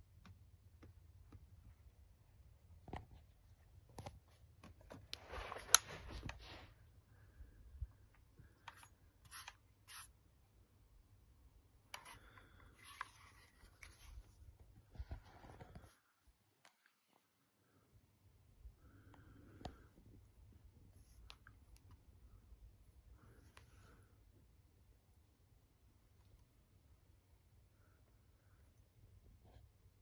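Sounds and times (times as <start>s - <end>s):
rubbing and rustling of handling: 2.8s - 6.9s, 8.4s - 10.2s, 11.9s - 17.3s.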